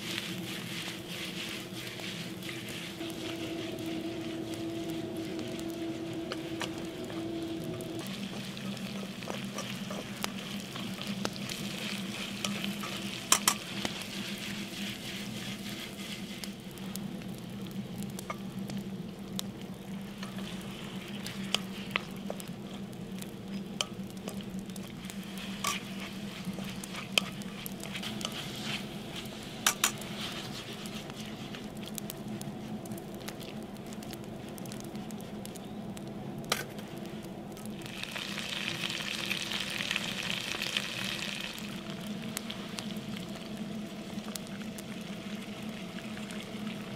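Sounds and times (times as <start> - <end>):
meat and onion sizzling in a pan: 0.0 - 34.0, 37.7 - 46.9.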